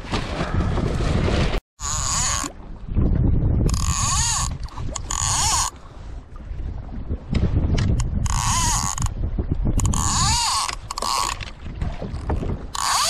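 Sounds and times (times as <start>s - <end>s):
water noise: 0.0s - 13.0s
wind: 0.0s - 13.0s
fishing reel drag buzzing: 1.8s - 2.5s, 3.7s - 5.7s, 8.3s - 9.1s, 9.8s - 11.4s, 12.8s - 13.0s.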